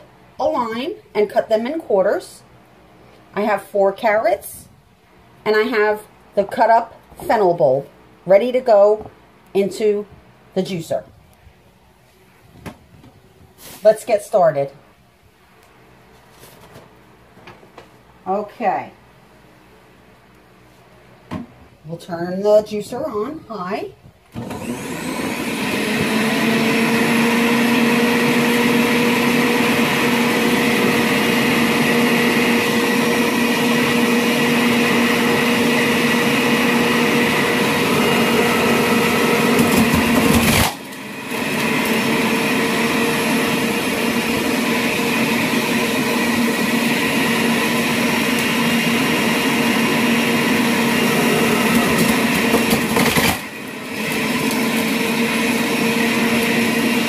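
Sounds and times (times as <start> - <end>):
juicer motor whining: 24.3 - 57.0.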